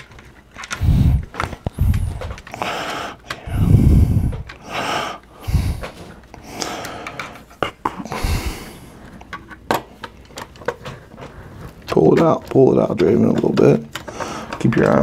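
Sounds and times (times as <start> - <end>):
heavy breathing: 0.7 - 9.4, 10.7 - 11.9, 14.0 - 14.6
breath puffs on microphone: 0.8 - 6.7, 8.1 - 9.0.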